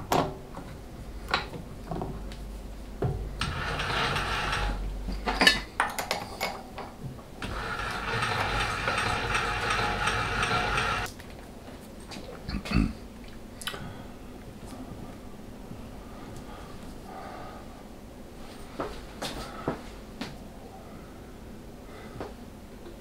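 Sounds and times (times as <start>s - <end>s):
small machine motor running: 3.4s - 4.8s, 7.4s - 11.1s.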